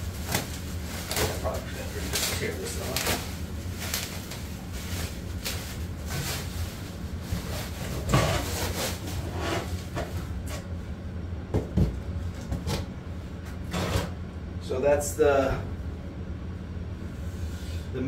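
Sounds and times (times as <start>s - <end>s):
bubble wrap crinkling: 0.0s - 9.1s.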